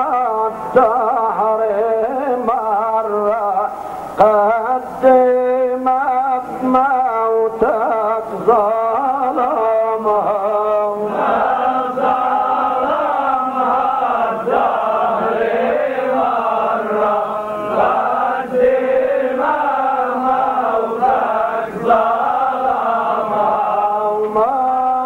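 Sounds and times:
person chanting unaccompanied: 0:00.0 - 0:25.0.

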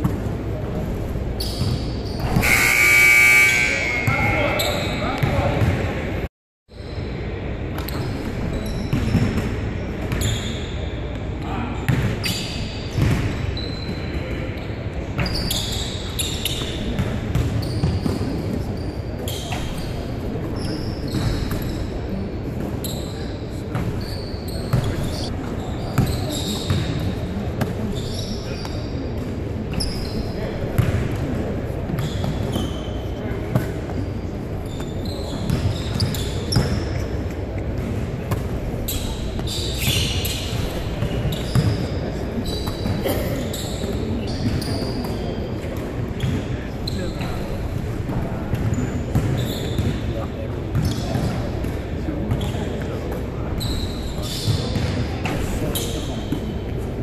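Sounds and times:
sneakers squeaking on court: 0:00.0 - 0:57.0
gym background din: 0:01.7 - 0:06.3
basketballs bouncing on wood floor: 0:05.2 - 0:05.9.

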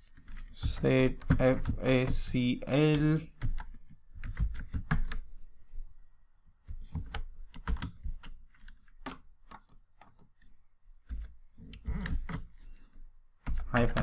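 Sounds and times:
computer keyboard typing: 0:00.2 - 0:05.3, 0:06.9 - 0:10.4, 0:13.4 - 0:14.0.

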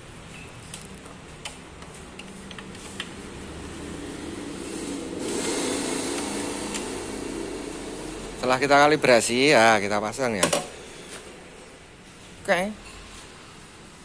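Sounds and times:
steady background hum: 0:00.0 - 0:14.0
even rushing noise: 0:03.4 - 0:09.4.

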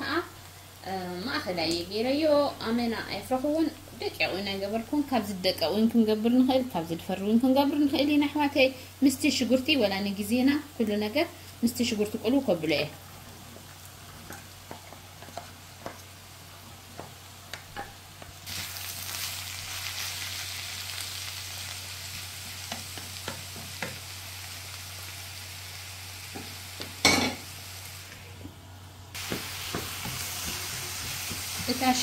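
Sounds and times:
zucchini sizzling in a pan: 0:00.0 - 0:32.0
wooden spatula knocking on pan: 0:29.2 - 0:32.0.

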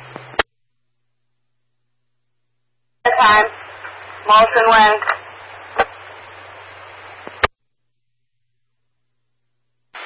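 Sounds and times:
radio static hiss: 0:00.0 - 0:00.5, 0:03.0 - 0:07.5
radio squelch click: 0:03.6 - 0:07.5.

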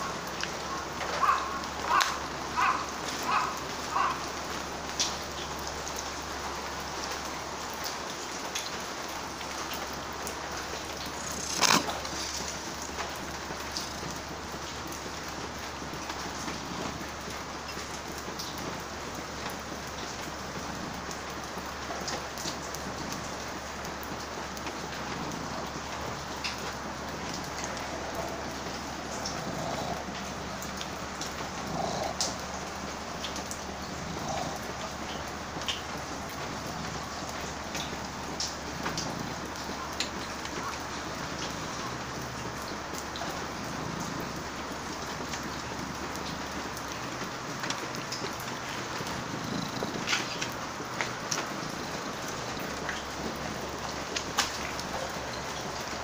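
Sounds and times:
rain falling on wet surface: 0:00.0 - 0:56.0
water drips: 0:00.0 - 0:56.0.

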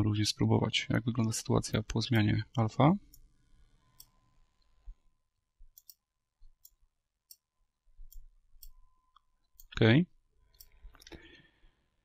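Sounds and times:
computer mouse clicks: 0:03.9 - 0:04.7, 0:05.7 - 0:07.5, 0:10.5 - 0:11.2.

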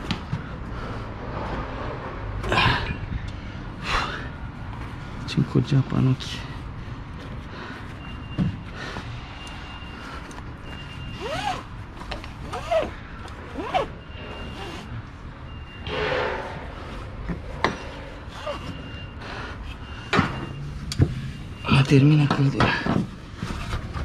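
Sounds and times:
short squeaks: 0:12.5 - 0:19.2
rasping scrape: 0:15.8 - 0:19.0.

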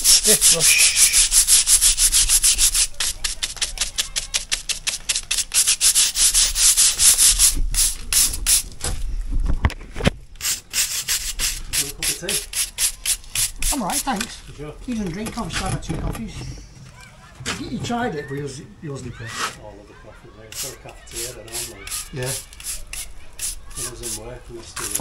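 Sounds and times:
bristle brush scrubbing brickwork: 0:00.0 - 0:08.7, 0:10.4 - 0:14.3, 0:20.4 - 0:25.0.

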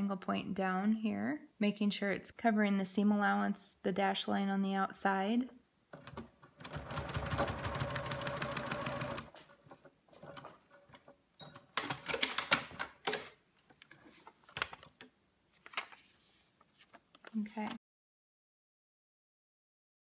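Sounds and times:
sewing machine stitching: 0:06.0 - 0:09.4
paper crackling: 0:14.1 - 0:17.4.

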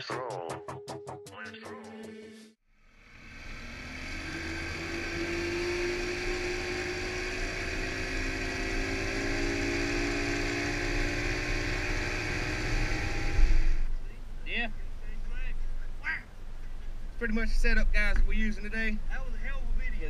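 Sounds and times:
outboard motor running: 0:02.9 - 0:13.9.

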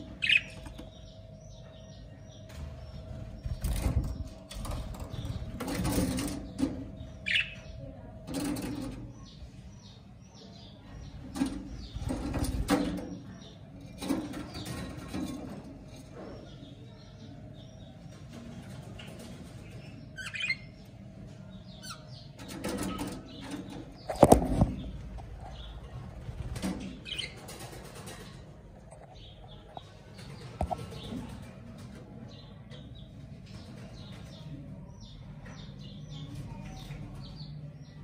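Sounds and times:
budgerigars chirping: 0:00.0 - 0:04.1, 0:04.7 - 0:07.8.

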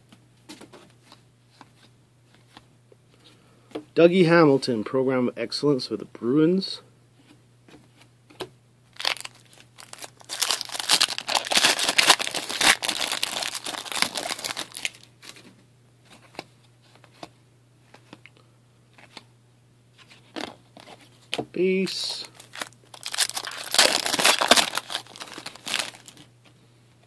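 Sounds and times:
foil wrapper crinkling: 0:09.0 - 0:15.1, 0:22.4 - 0:26.3.

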